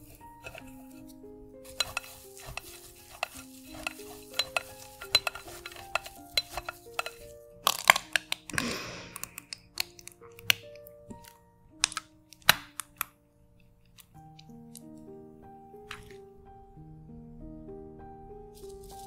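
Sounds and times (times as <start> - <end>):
light background music: 0.0 - 19.0
squeeze bottle squirting: 1.6 - 11.2
ingredients tapping into glass bowl: 1.7 - 8.5.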